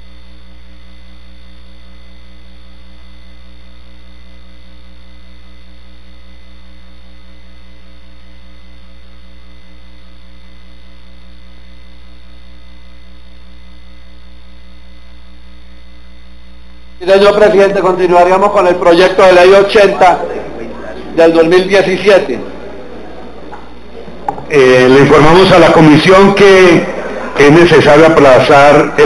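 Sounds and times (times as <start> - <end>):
electrical mains hum: 0.0 - 29.0.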